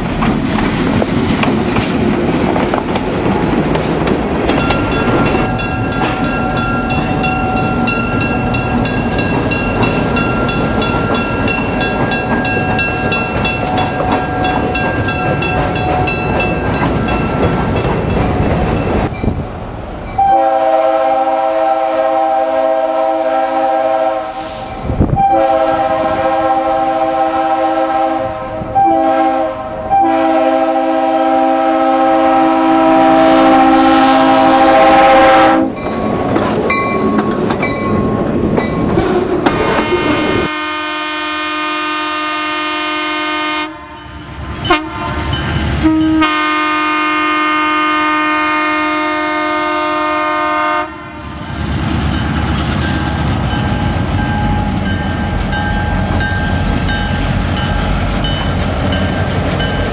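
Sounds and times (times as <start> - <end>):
train rumbling: 0.0 - 59.9
grade crossing signal: 4.4 - 21.4
locomotive air horn: 20.2 - 35.8, 39.5 - 44.1, 44.7 - 51.4.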